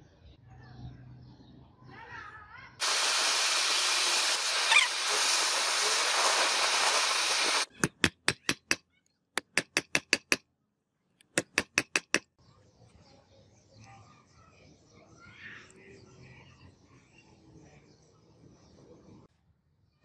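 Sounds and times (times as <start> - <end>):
gas torch flame hissing: 2.8 - 7.7.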